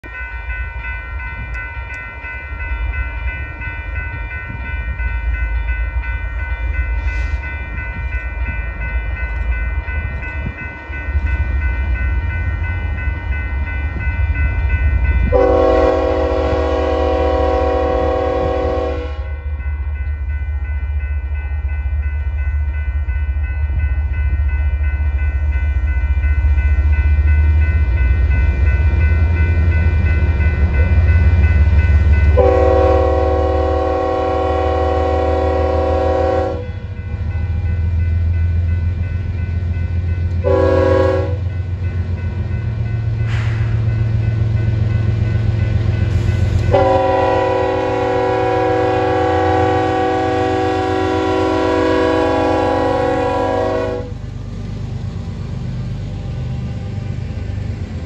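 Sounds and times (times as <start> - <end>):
crossing bell ringing: 0.0 - 58.0
diesel locomotive rumble: 0.0 - 58.0
locomotive horn blast: 15.3 - 19.4, 32.4 - 36.8, 40.4 - 41.5, 46.7 - 54.2.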